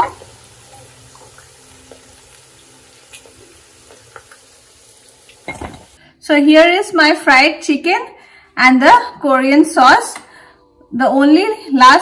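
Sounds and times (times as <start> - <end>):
chicken frying in hot oil: 0.0 - 6.0.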